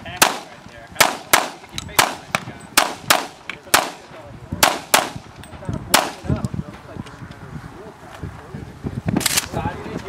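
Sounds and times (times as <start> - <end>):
pistol shots: 0.2 - 4.0, 4.6 - 5.2, 5.9 - 6.2.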